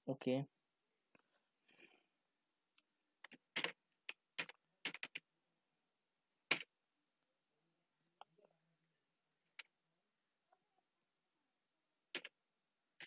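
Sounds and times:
computer keyboard typing: 3.2 - 5.3, 6.5 - 6.7, 12.1 - 12.4.

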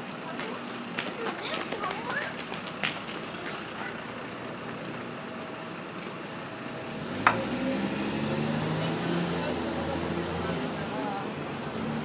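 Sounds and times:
city street traffic: 0.0 - 12.0
vehicle engine accelerating: 2.6 - 12.0.

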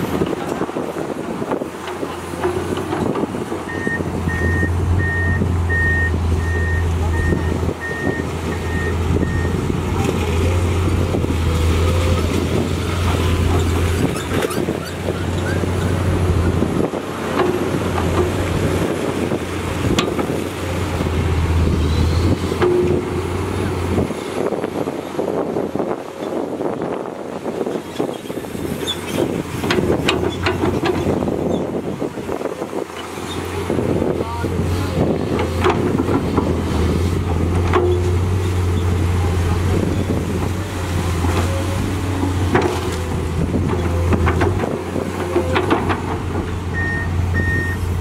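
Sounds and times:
excavator diesel engine droning: 0.0 - 48.0.

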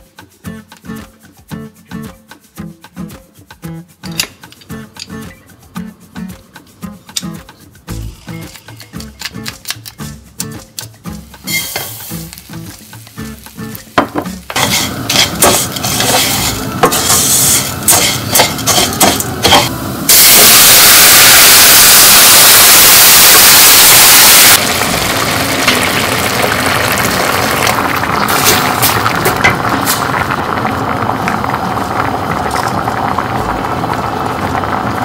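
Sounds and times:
loud hiss of broth in pan: 11.4 - 12.3, 14.6 - 23.8
rice sizzling in oil: 11.4 - 35.0
wooden spoon scraping a pan: 14.5 - 19.7.

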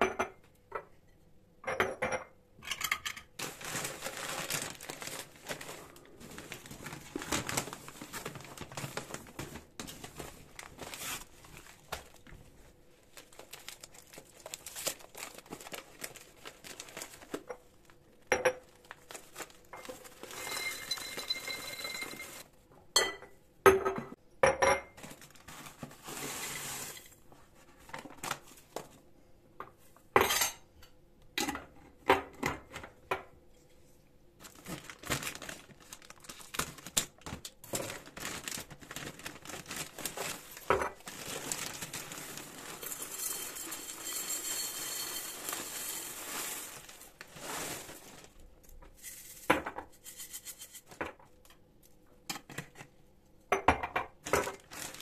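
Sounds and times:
paper bags rustling: 3.4 - 22.5, 25.0 - 28.9, 34.4 - 49.4, 54.2 - 55.0
glass jars clinking on stone: 19.8 - 22.4, 42.8 - 46.2
peanuts poured into glass jar: 41.4 - 47.6.

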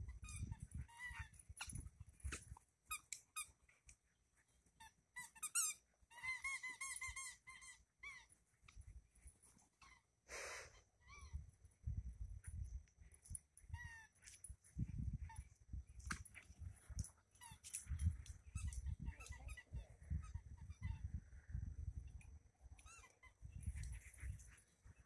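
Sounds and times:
squeaky dog toy squeaks: 0.0 - 1.8, 2.9 - 3.6, 4.8 - 8.3, 11.0 - 11.4, 13.7 - 14.3, 18.5 - 21.2, 22.8 - 24.4.

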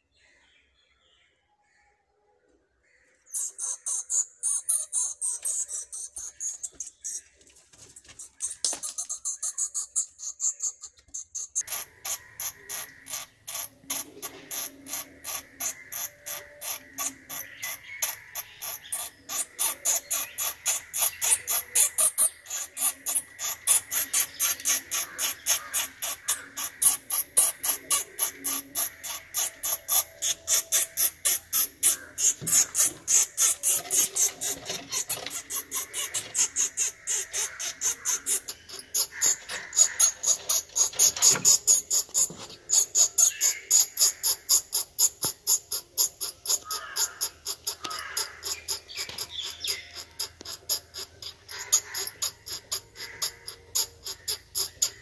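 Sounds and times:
bats squeaking: 3.2 - 55.0.

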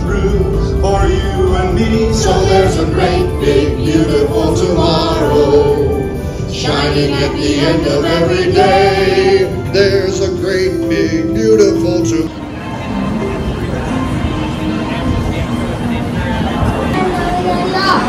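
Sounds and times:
group singing with music: 0.0 - 12.3.

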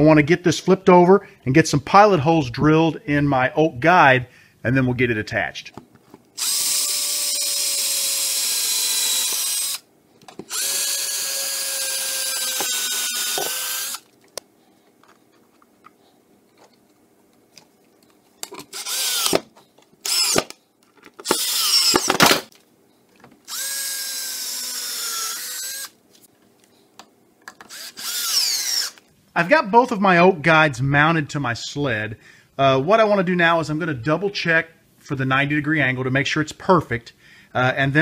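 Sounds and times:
cordless drill running: 6.4 - 9.9, 10.5 - 14.0, 18.7 - 19.4, 20.0 - 20.6, 21.2 - 22.5, 23.5 - 26.0, 27.7 - 29.0.

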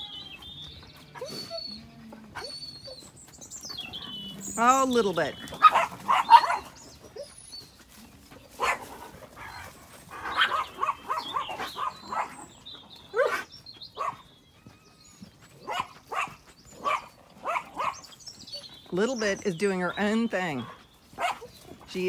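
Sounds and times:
small dogs yapping: 1.0 - 4.5, 5.4 - 7.6, 8.5 - 14.3, 15.6 - 18.7, 21.1 - 21.6.

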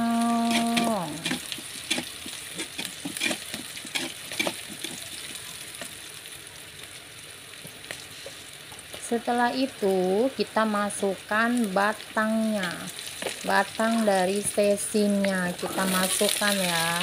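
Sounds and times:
metal spatula scraping wok: 0.0 - 5.4
vegetables sizzling in oil: 0.0 - 17.0.

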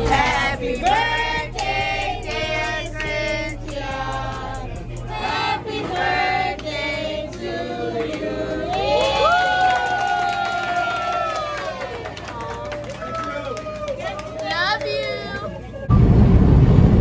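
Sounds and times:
group singing: 0.0 - 9.1
hands clapping: 8.0 - 15.5.

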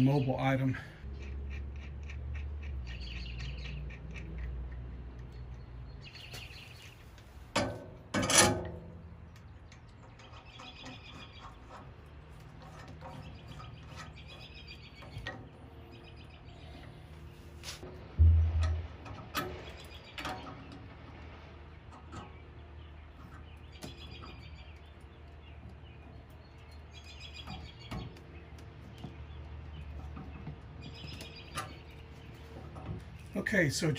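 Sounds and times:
birds chirping: 0.0 - 7.2, 13.0 - 17.6, 22.2 - 33.9
heavy metal clunk: 18.2 - 19.7
sharp metal knocks: 18.2 - 20.5.

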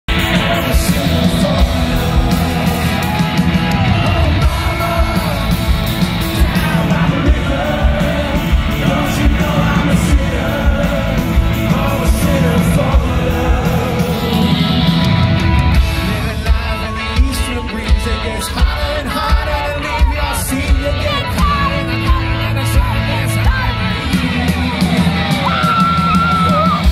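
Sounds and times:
male vocals: 0.0 - 15.1, 15.8 - 24.5
live rock band: 0.1 - 26.9.

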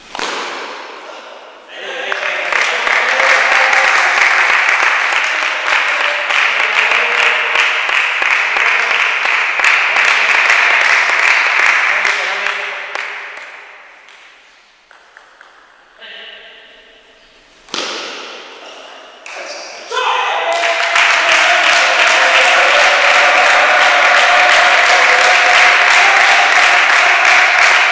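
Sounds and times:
spectators clapping: 1.8 - 14.3, 20.4 - 27.9.

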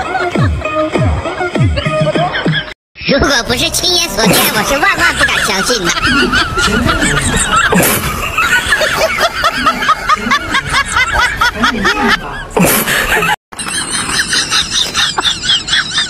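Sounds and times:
high-pitched snickering laughter: 5.2 - 16.0.

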